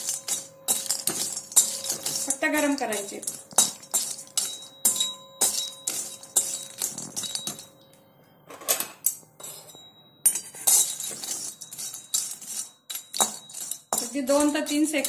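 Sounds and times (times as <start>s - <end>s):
metal spatula scraping iron pan: 0.0s - 4.6s, 10.3s - 15.0s.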